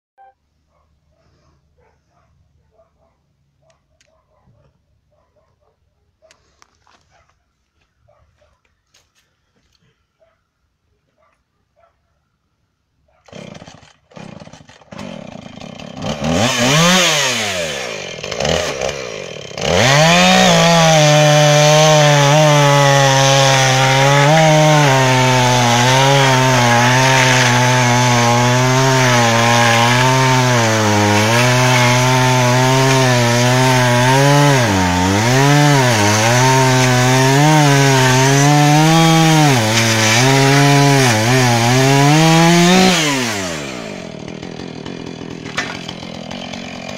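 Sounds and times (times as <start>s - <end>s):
chainsaw cutting through logs: 13.2s - 46.9s
chainsaw engine revving: 13.3s - 46.9s.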